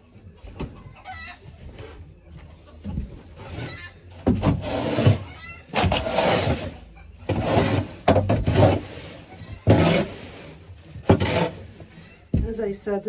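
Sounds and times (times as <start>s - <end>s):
chickens calling: 0.4s - 4.2s
rake scraping wood shavings: 4.4s - 12.0s.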